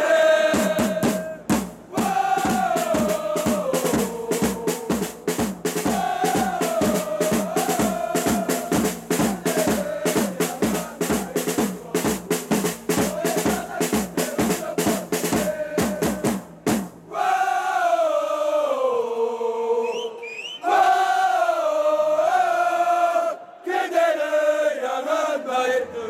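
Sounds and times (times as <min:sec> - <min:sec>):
marching drums and snare beating: 0:00.0 - 0:17.2
crowd singing a chant: 0:00.0 - 0:26.0.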